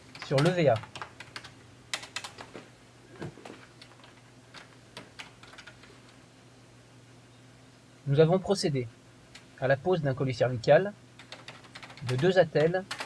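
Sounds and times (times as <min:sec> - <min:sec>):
faint low hum: 0:00.0 - 0:13.0
typing on a keyboard: 0:00.1 - 0:02.5, 0:03.8 - 0:05.9, 0:11.2 - 0:13.0.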